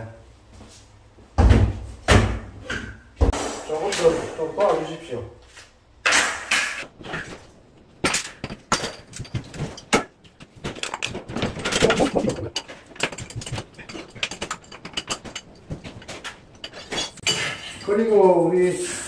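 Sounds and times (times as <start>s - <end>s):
demolition knocks and scrapes: 6.8s - 19.0s.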